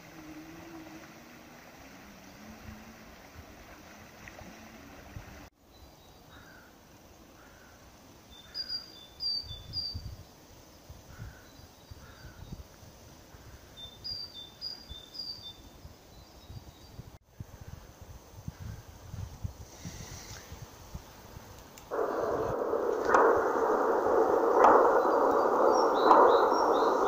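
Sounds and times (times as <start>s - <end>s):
small birds calling: 8.4s - 10.0s, 21.9s - 27.0s
wind gusting on microphone: 16.4s - 27.0s
low steady hum: 21.9s - 27.0s.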